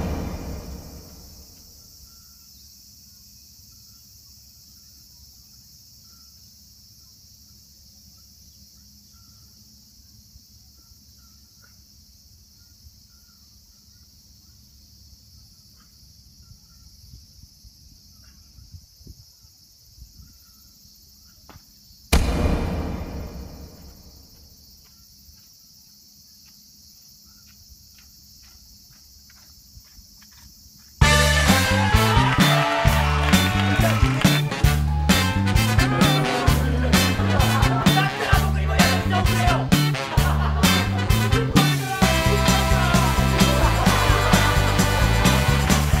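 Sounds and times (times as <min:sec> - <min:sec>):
sudden loud sound: 0:00.0 - 0:01.6, 0:22.2 - 0:24.4
high-pitched insect chorus: 0:00.0 - 0:31.0.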